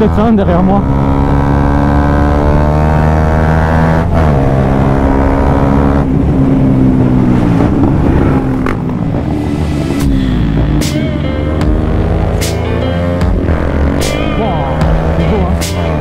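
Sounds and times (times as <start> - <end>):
motorcycle engine running: 4.7 - 16.0.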